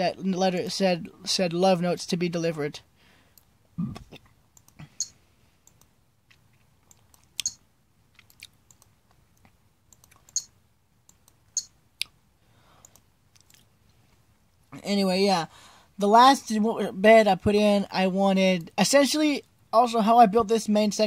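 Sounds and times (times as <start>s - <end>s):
faint room noise: 0.0s - 21.0s
computer mouse clicking: 4.6s - 5.9s, 6.8s - 7.6s, 8.2s - 10.5s, 11.1s - 11.8s, 12.8s - 13.6s.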